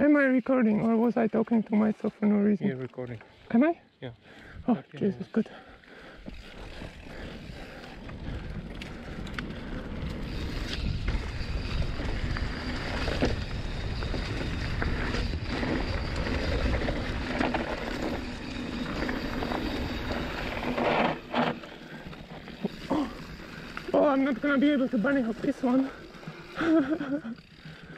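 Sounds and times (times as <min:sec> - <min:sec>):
bike tyres rumbling on dirt: 0:06.0 - 0:27.9
bike knocking and rattling: 0:06.3 - 0:27.9
wind buffeting microphone: 0:06.6 - 0:20.8.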